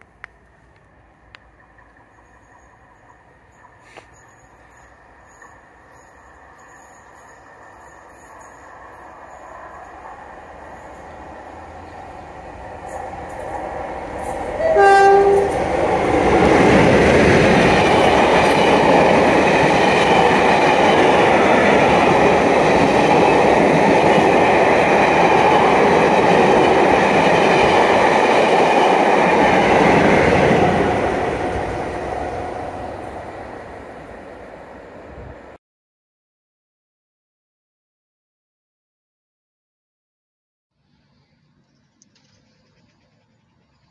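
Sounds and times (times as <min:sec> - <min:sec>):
train passing at speed: 0:00.0 - 0:35.6
train two-tone horn: 0:14.5 - 0:15.7.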